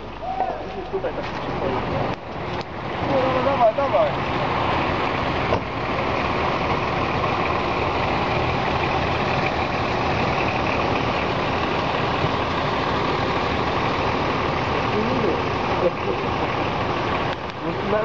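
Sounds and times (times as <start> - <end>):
suv engines running: 0.0 - 18.0.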